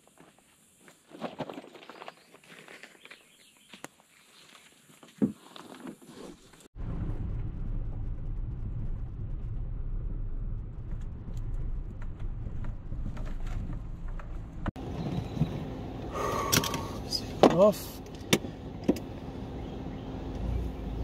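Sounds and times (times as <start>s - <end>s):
car interior low rumble: 6.8s - 21.0s.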